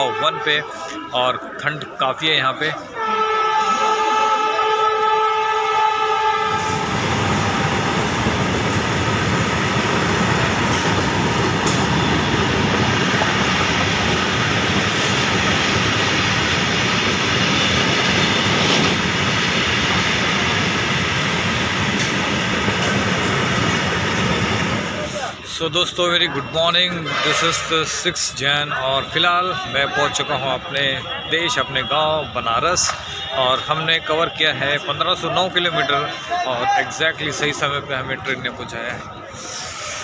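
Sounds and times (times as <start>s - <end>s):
train horn: 2.9s - 8.0s, 17.2s - 18.9s, 26.9s - 28.1s
train wheels on rails: 6.4s - 26.0s.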